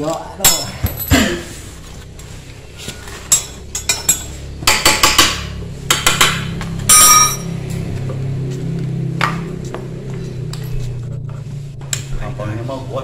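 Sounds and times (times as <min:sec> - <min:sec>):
metal tools clinking on engine: 0:00.0 - 0:01.4, 0:03.3 - 0:04.4, 0:06.8 - 0:07.6.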